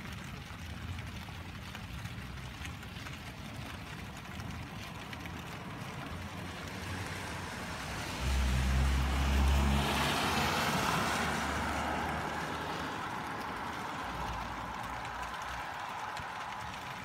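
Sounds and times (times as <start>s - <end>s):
tyres hissing on wet road: 4.6s - 17.0s.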